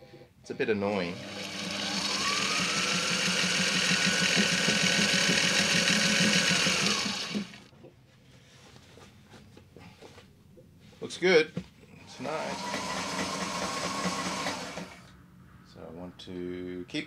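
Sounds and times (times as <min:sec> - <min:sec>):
sewing machine stitching: 0:00.9 - 0:07.7, 0:12.1 - 0:15.1.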